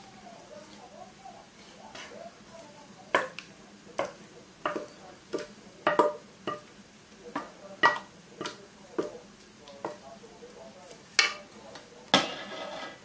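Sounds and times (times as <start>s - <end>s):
metal pot clanking: 4.0s - 6.7s, 7.3s - 9.1s, 12.2s - 13.0s.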